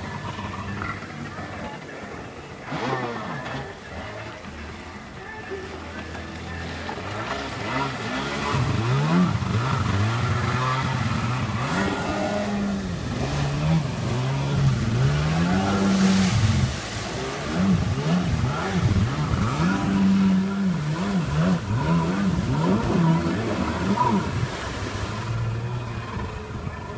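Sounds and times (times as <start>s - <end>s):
jet ski engine revving: 0.0s - 26.9s
water spray rushing: 5.5s - 26.2s.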